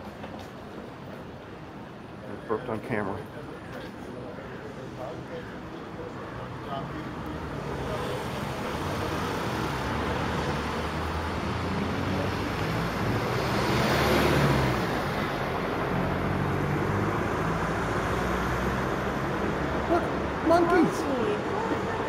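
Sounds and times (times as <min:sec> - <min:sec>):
road traffic rumble: 0:00.0 - 0:22.0
vehicle passing close: 0:07.6 - 0:22.0.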